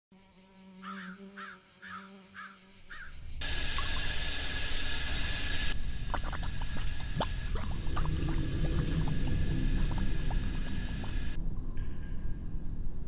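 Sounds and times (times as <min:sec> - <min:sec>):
crow cawing: 0:00.8 - 0:03.1
steam hissing: 0:03.4 - 0:11.4
low steady hum: 0:03.4 - 0:13.0.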